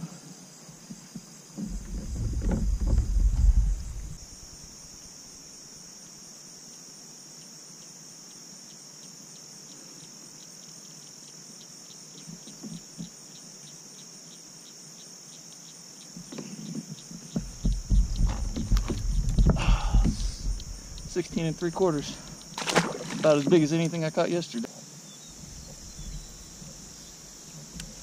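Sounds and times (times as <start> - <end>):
insects buzzing: 0.0 - 28.0
low knocks: 1.6 - 4.6, 17.3 - 22.2
faint ticking call: 7.4 - 22.6.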